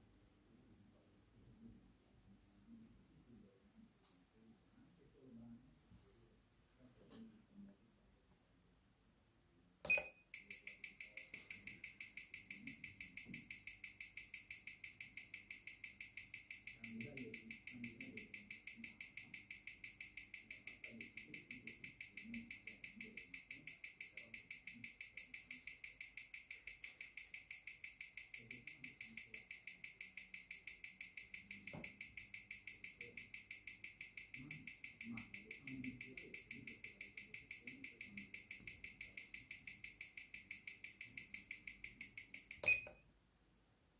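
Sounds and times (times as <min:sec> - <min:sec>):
button click: 0:09.9 - 0:10.1, 0:42.6 - 0:43.0
fast even watch ticking: 0:10.3 - 0:42.8.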